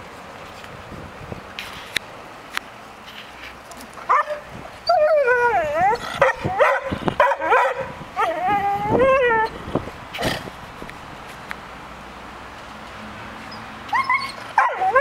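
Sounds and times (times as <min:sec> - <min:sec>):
dog barking and yelping: 0:04.1 - 0:09.6, 0:13.9 - 0:15.0.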